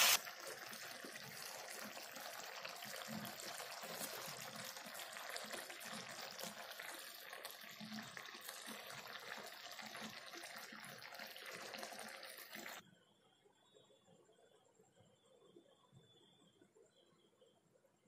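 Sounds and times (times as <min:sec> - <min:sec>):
curry simmering with bubbling pops: 0:00.0 - 0:12.8.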